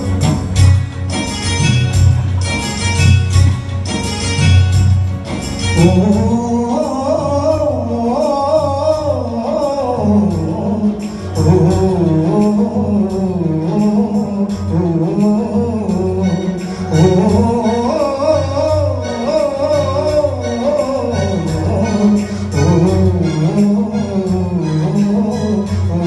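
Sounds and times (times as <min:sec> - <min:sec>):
guitar: 0:00.0 - 0:26.0
keyboard: 0:00.0 - 0:26.0
man singing: 0:05.8 - 0:26.0.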